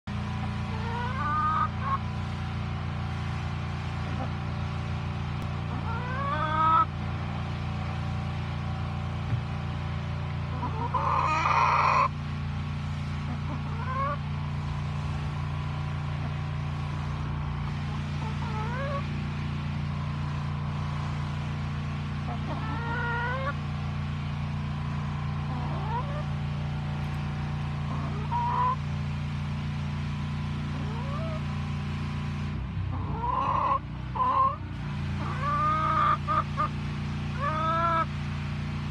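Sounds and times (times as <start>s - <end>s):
steady low hum: 0.1s - 38.9s
chicken calling: 0.7s - 2.0s, 5.7s - 6.9s, 10.5s - 12.1s, 13.3s - 14.2s, 18.2s - 19.1s, 22.3s - 23.6s, 25.4s - 26.3s, 27.8s - 28.8s, 30.7s - 31.4s, 33.0s - 34.6s, 35.2s - 36.7s, 37.3s - 38.1s.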